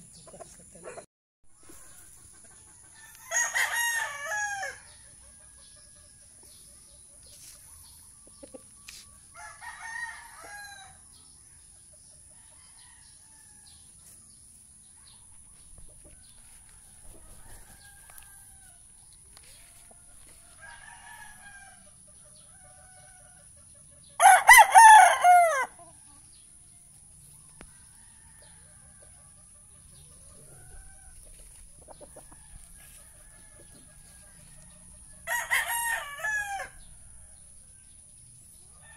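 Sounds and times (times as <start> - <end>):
rooster crowing: 2.9 - 4.9, 9.3 - 11.0, 17.2 - 18.8, 20.5 - 21.8, 24.2 - 25.8, 35.2 - 36.9.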